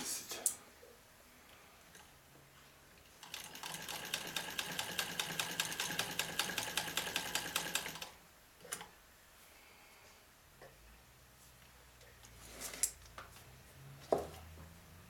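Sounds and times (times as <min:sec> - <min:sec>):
sewing machine stitching: 0:03.2 - 0:08.2.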